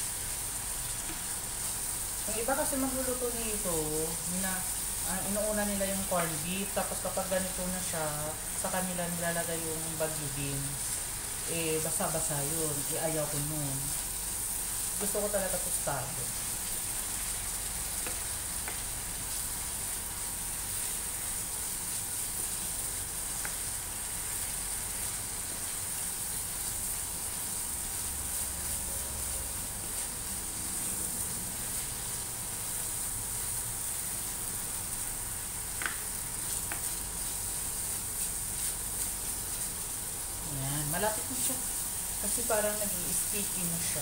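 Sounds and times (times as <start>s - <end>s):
meat sizzling in a frying pan: 0.0s - 44.0s
spatula clicking on a pan: 35.8s - 36.0s.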